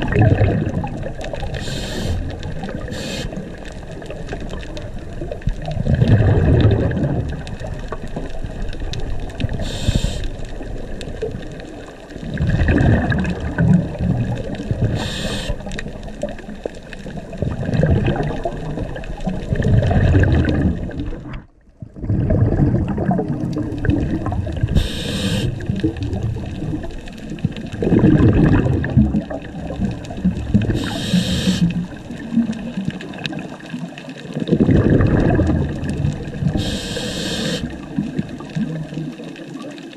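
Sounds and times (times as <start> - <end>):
exhaled bubbles rushing: 0.0 - 39.9
regulator inhalation hiss: 1.6 - 3.4, 9.6 - 10.4, 14.9 - 15.7, 24.8 - 25.6, 30.7 - 31.8, 36.6 - 37.7.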